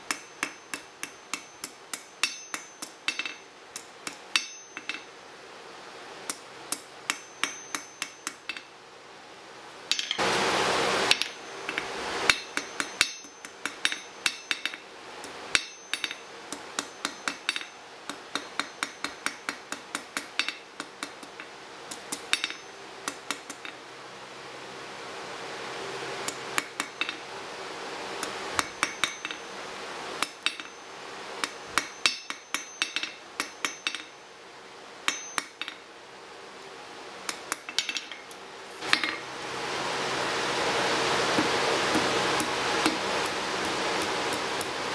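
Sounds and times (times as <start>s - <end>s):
hammer striking metal on anvil: 0.0s - 5.1s, 6.3s - 8.7s, 9.9s - 10.2s, 11.1s - 23.8s, 26.3s - 27.2s, 28.6s - 29.5s, 30.2s - 30.8s, 31.4s - 34.2s, 35.1s - 35.8s, 37.3s - 39.2s
faint rushing noise: 9.0s - 13.0s
loud rush of noise: 10.2s - 12.3s.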